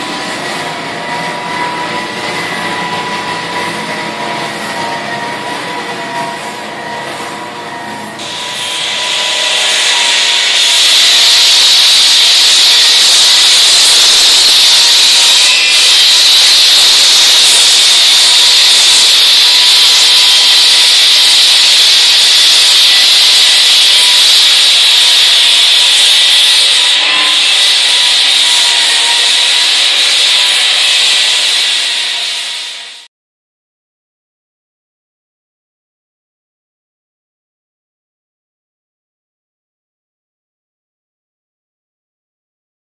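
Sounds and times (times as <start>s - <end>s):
sander motor hum: 0.0s - 33.0s
floor sander hissing: 0.0s - 33.1s.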